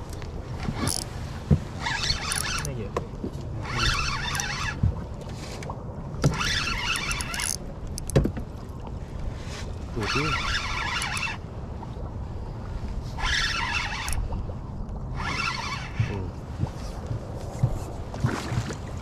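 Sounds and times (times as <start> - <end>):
fishing reel cranking: 0.7 - 1.1, 1.8 - 2.8, 3.6 - 4.8, 6.3 - 8.1, 10.0 - 11.4, 13.2 - 14.3, 15.1 - 16.1.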